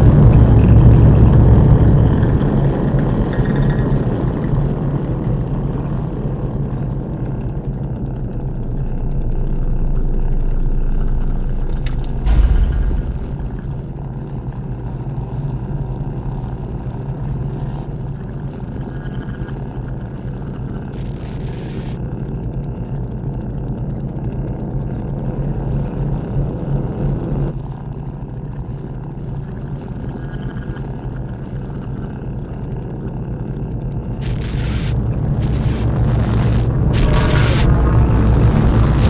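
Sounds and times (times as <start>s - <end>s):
low rumbling drone: 0.0s - 14.9s, 33.4s - 39.0s.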